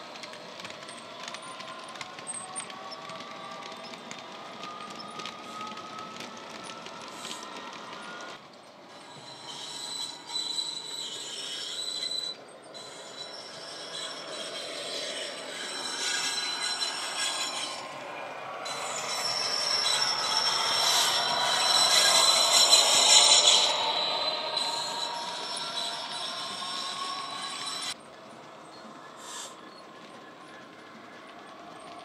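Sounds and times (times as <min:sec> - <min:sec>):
model wheels running on track: 0:00.0 - 0:09.5, 0:14.1 - 0:32.0
model locomotive diesel sound: 0:00.0 - 0:32.0
steady high-pitched tones: 0:13.1 - 0:31.9.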